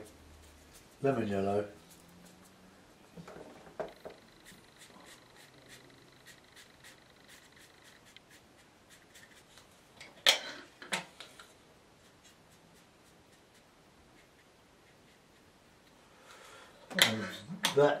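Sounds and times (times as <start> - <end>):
paintbrush scrubbing on paper: 4.3 - 9.7, 11.9 - 15.8.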